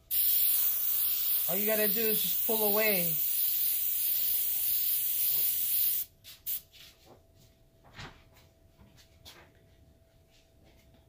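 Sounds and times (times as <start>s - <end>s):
airbrush air hiss: 0.0s - 6.6s.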